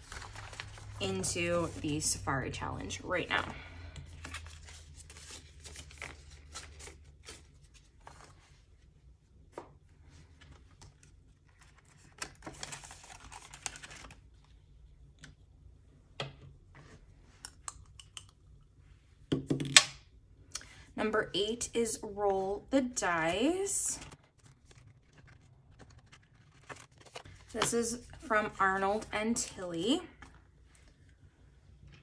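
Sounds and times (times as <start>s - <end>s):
plastic crinkling and rustling: 24.0s - 28.2s.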